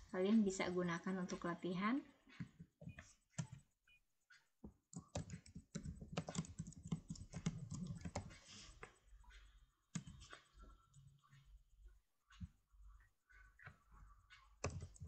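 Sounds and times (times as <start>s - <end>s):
typing on computer keyboard: 4.9s - 8.4s, 14.6s - 15.0s.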